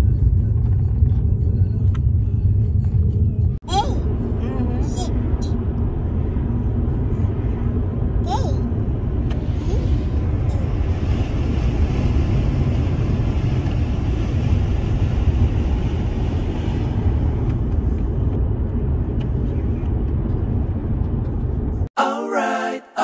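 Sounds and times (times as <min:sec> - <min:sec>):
car road and engine rumble: 0:00.0 - 0:22.0
a cappella singing: 0:22.0 - 0:23.0.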